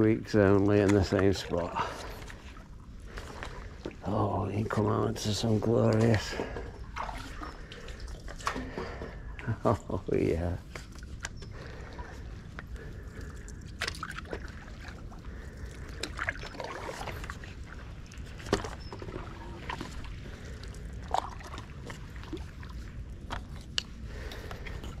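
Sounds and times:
water sloshing: 0.0 - 25.0
paddle splashing in water: 6.0 - 9.2, 10.7 - 24.5.

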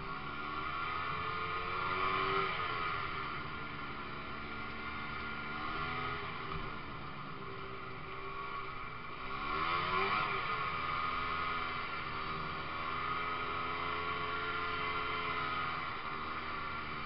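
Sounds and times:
snowmobile engine revving: 8.1 - 17.0.

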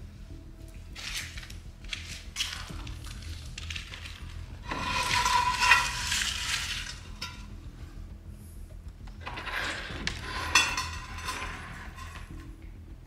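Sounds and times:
rough scraping rustle: 2.1 - 7.1.

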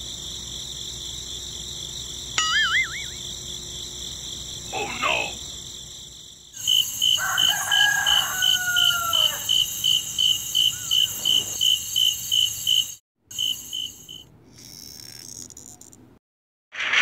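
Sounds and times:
crickets chirping: 0.0 - 16.1
rooster crowing: 6.9 - 9.8.

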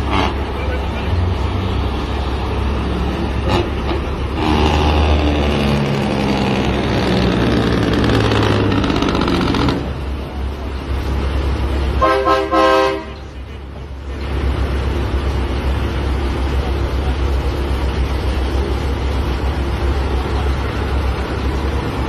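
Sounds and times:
diesel trucks engine rumble: 0.0 - 22.0
truck horn: 3.4 - 5.1, 12.0 - 13.4.

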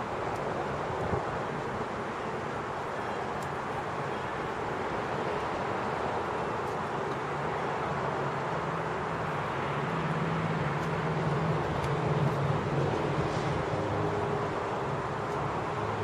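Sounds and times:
low engine hum: 5.0 - 16.0.

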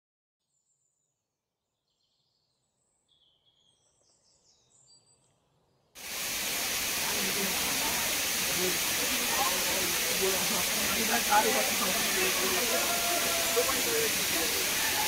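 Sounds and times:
faint high bird chirps: 0.5 - 5.9
waterfall rushing: 6.0 - 15.0.

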